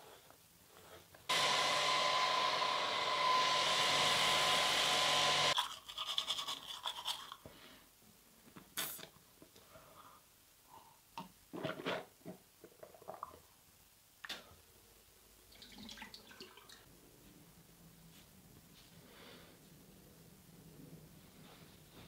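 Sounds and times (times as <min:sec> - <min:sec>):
hair dryer blowing: 0:01.3 - 0:05.6
toothbrush scrubbing teeth: 0:05.6 - 0:07.5.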